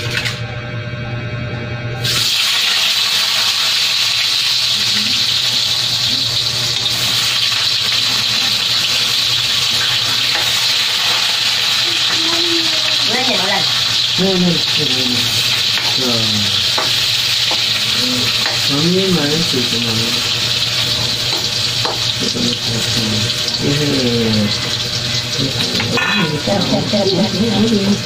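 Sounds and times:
food sizzling in oil: 2.0 - 28.0.

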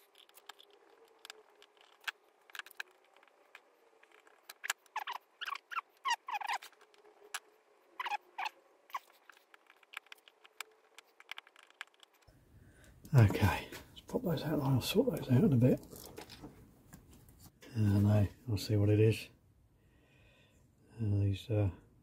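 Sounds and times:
screwdriver clicks and squeaky scrapes: 0.0 - 12.3
faint steady hum: 0.0 - 22.0.

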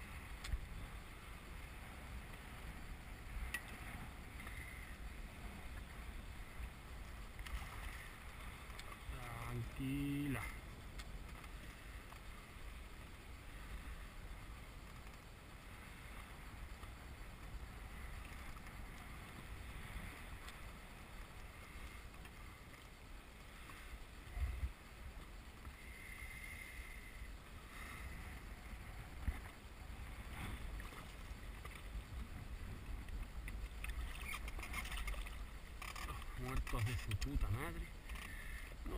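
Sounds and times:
wind rumble on microphone: 0.0 - 38.9
water lapping against boat hull: 27.7 - 38.9.

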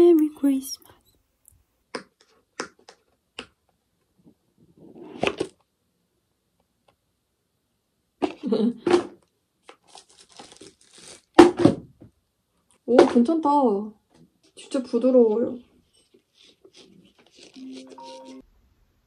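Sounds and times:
packaging rustle: 9.7 - 11.4, 16.2 - 17.8.

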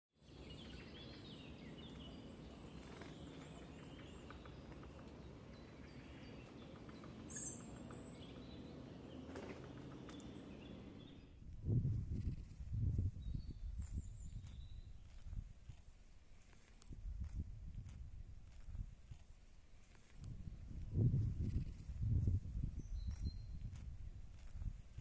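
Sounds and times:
small birds chirping: 0.2 - 25.0.

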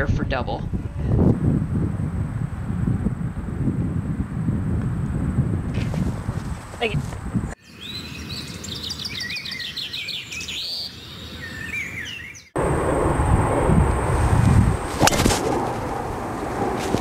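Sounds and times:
wind on microphone: 0.0 - 7.6, 12.6 - 17.0
birds chirping and trilling: 6.5 - 12.6
golf ball struck crack: 14.9 - 16.2.

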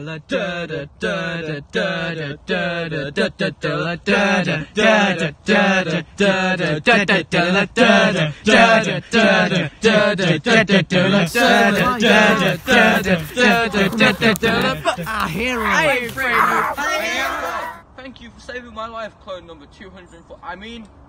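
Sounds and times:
man chanting a syllable: 11.0 - 17.8.

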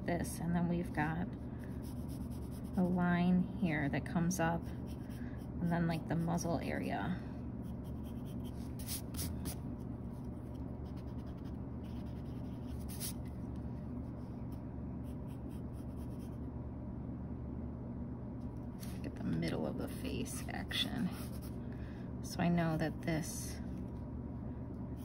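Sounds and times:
steady low hum: 0.0 - 25.0
pencil sketching on paper: 1.8 - 3.0, 7.7 - 9.6, 10.8 - 13.2.

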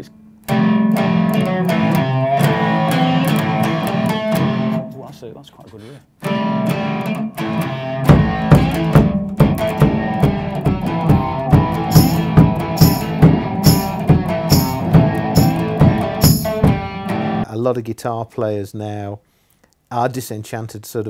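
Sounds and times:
electric guitar through amplifier: 0.0 - 4.9
kick drum beat: 8.1 - 16.9
cymbal hits: 11.9 - 16.7.

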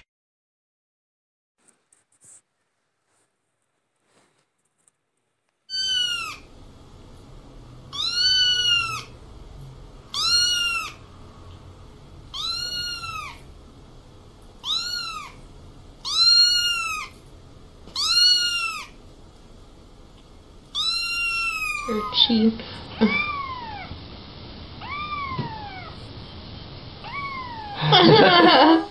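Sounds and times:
kitten meowing: 5.7 - 6.5, 7.9 - 9.1, 10.1 - 11.0, 12.3 - 13.4, 14.6 - 15.4, 16.0 - 17.2, 17.9 - 19.0, 20.7 - 22.4, 23.0 - 23.9, 24.8 - 26.0, 27.0 - 28.0.

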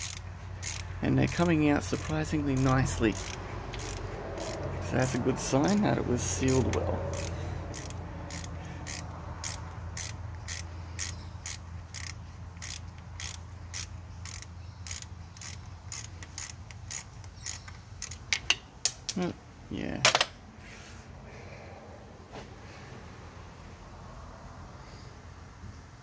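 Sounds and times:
ratchet clicking: 0.0 - 18.6.

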